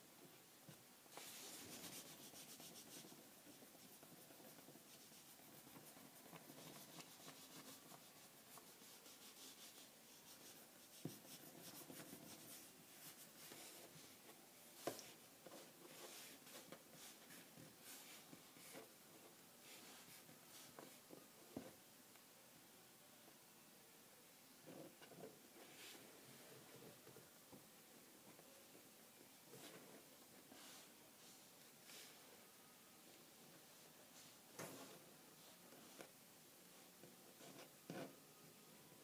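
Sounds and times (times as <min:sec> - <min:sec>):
fingertips rubbing clay on a desk: 0:01.1 - 0:14.1.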